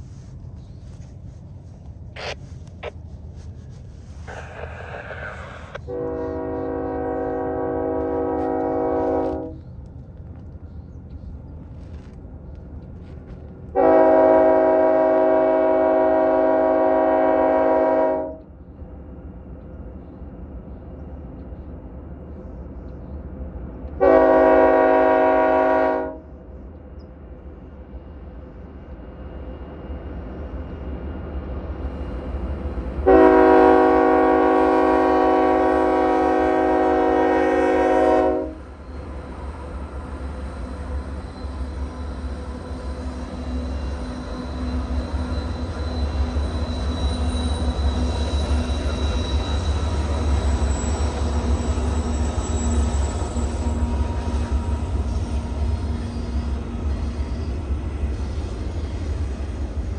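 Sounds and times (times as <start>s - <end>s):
locomotive low rumble: 0.0s - 17.5s
locomotive air horn blasts: 5.7s - 9.6s, 13.7s - 18.4s, 24.0s - 26.2s, 33.0s - 38.6s.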